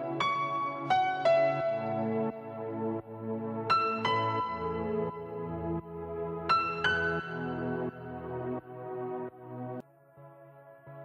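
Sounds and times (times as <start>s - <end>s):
soft new-age music: 0.0s - 11.0s.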